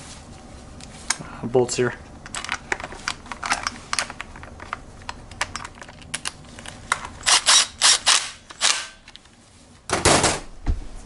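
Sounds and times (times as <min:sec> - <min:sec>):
cordless power driver bursts: 0:07.2 - 0:09.0.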